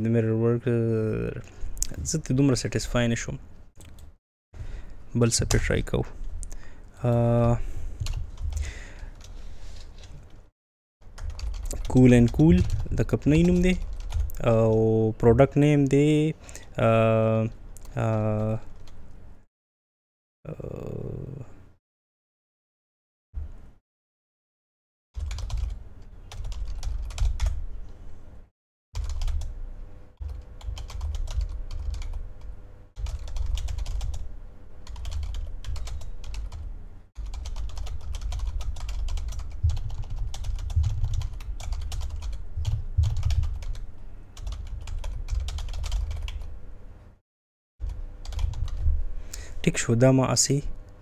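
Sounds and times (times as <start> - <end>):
typing on computer keyboard: 11.2 - 14.8, 25.2 - 27.6, 29.0 - 29.5, 30.2 - 32.2, 33.0 - 34.2, 34.9 - 36.6, 37.2 - 43.8, 44.4 - 46.5, 48.2 - 48.8.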